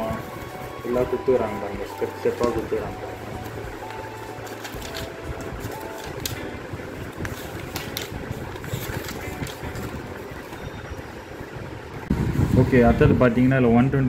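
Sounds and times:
paper pages rustling: 0:00.0 - 0:06.5, 0:07.1 - 0:10.6
low background rumble: 0:00.0 - 0:14.0.

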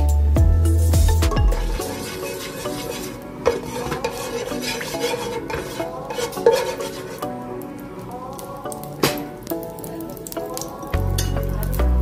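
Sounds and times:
spatula scraping a pot: 0:01.8 - 0:07.4.

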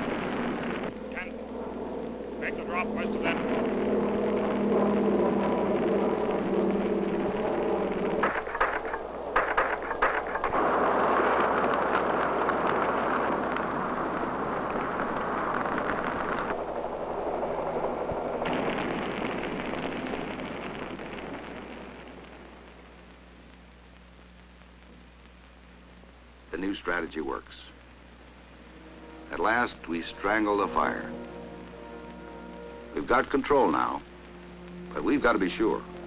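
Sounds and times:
piston engines droning overhead: 0:00.0 - 0:19.2, 0:28.5 - 0:36.0
fire rushing noise: 0:00.0 - 0:23.7, 0:26.3 - 0:36.0
fire crackling and popping: 0:00.0 - 0:36.0.

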